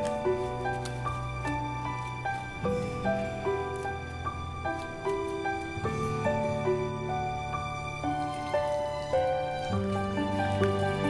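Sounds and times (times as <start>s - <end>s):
soft instrumental music: 0.0s - 11.0s.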